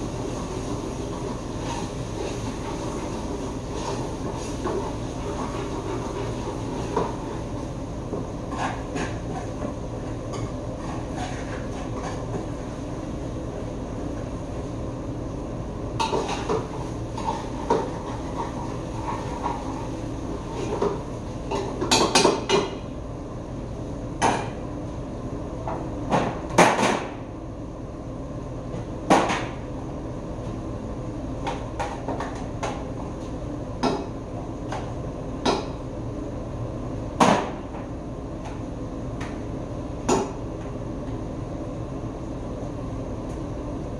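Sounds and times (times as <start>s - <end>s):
pots and utensils clattering: 8.5s - 12.6s, 16.0s - 22.8s.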